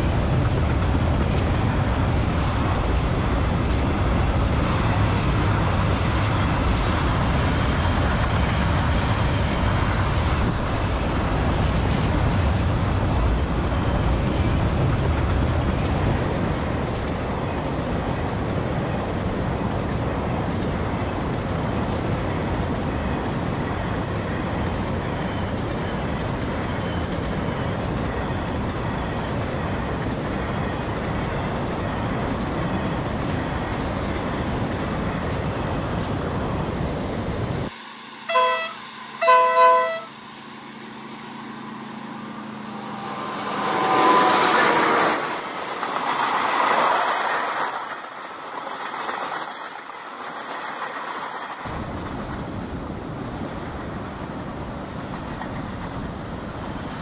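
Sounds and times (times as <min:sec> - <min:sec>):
train wheels on track: 0:00.0 - 0:57.0
locomotive horn blasts: 0:38.2 - 0:40.2
steady rushing noise: 0:40.3 - 0:57.0.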